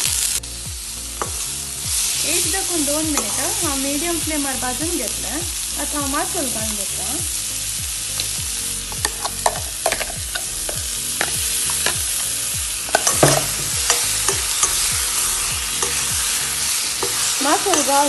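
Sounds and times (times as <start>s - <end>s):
vegetables sizzling in hot oil: 0.0s - 18.0s
spoon scraping and clinking on pan: 8.2s - 18.0s.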